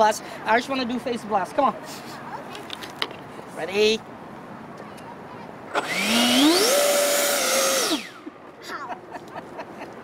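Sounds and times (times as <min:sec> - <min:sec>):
electric ducted fan whine: 0:05.7 - 0:08.6.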